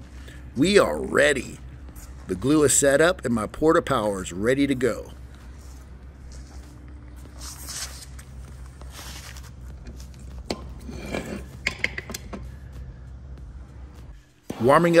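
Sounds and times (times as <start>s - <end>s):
steady low hum: 0.0s - 15.0s
soft rustles: 5.3s - 10.3s.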